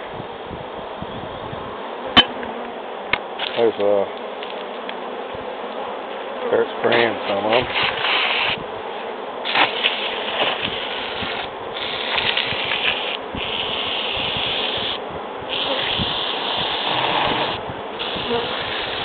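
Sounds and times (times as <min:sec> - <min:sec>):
aerosol spray hissing: 0:09.5 - 0:19.0.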